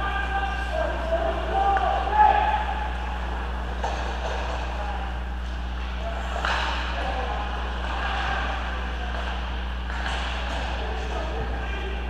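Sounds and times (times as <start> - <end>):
indistinct voices: 0.0 - 12.0
low hum: 0.0 - 12.0.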